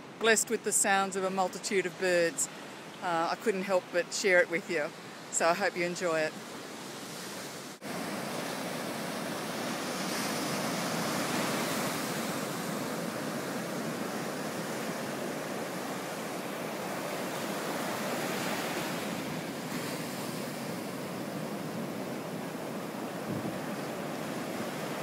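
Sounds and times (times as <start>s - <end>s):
surf breaking on beach: 7.8s - 25.0s.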